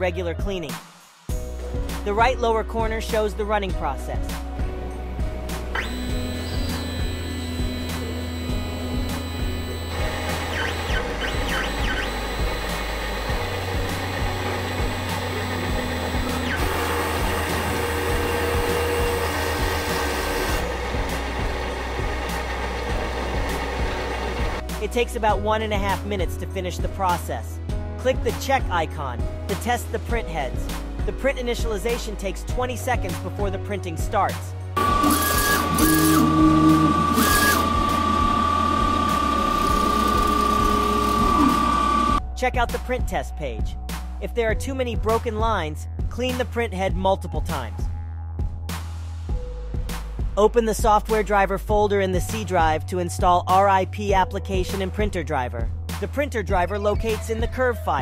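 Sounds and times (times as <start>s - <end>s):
printer motors whirring: 5.8s - 20.6s, 34.8s - 42.2s.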